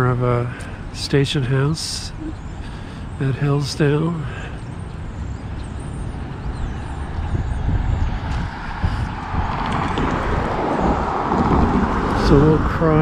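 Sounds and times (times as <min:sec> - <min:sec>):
road traffic driving past: 0:00.0 - 0:13.0
wind rumble on microphone: 0:04.6 - 0:13.0.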